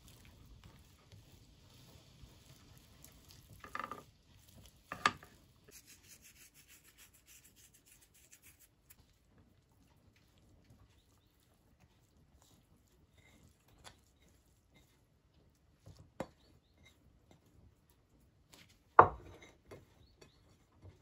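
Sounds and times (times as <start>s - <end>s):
soft rubbing and scraping: 0.0s - 15.0s
rapid fine scratching: 5.7s - 9.0s.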